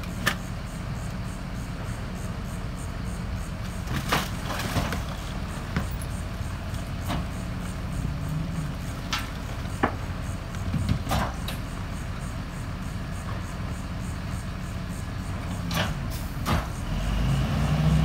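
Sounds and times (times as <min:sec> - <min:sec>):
truck engine idling: 0:00.0 - 0:17.6
trash falling: 0:03.7 - 0:07.6
trash cans banging: 0:03.8 - 0:06.2.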